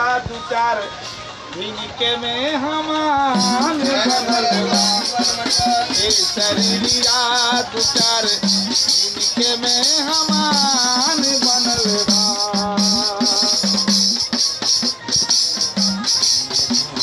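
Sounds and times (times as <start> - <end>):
man singing: 1.6 - 14.3
shaken rattle: 3.4 - 17.0.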